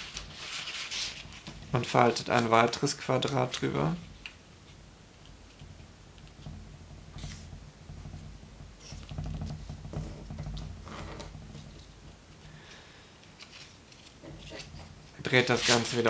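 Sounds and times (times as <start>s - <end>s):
paper rustling and scraping: 0.0s - 4.3s, 7.1s - 7.6s, 13.2s - 16.0s
paper crinkling: 0.0s - 4.4s, 12.4s - 16.0s.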